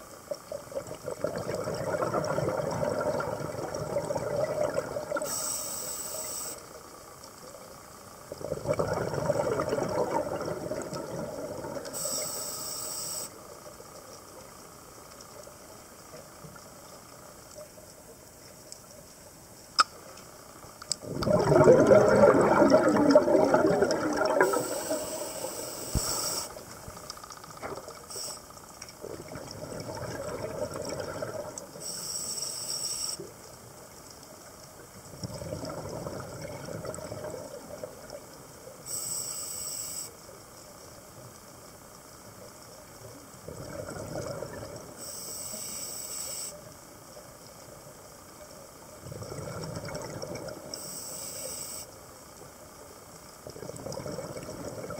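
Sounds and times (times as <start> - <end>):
exhaled bubbles underwater: 0.0 - 5.4, 8.2 - 12.2, 20.9 - 28.1, 29.0 - 31.9, 35.0 - 38.5, 43.2 - 45.1, 49.0 - 50.8, 53.4 - 54.9
regulator inhale hiss: 5.2 - 6.8, 11.9 - 13.4, 24.4 - 26.8, 28.1 - 28.6, 31.8 - 33.3, 38.9 - 40.3, 45.0 - 46.7, 50.8 - 52.0.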